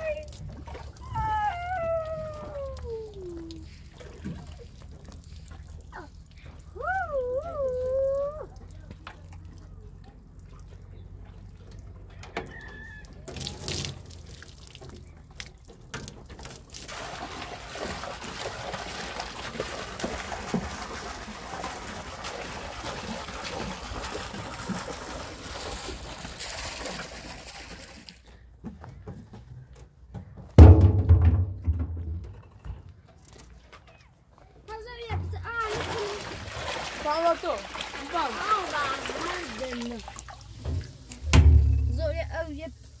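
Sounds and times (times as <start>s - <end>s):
water pouring: 0.0s - 11.9s, 12.8s - 28.2s, 35.3s - 43.0s
loud low thump: 30.6s - 32.3s, 40.7s - 42.3s.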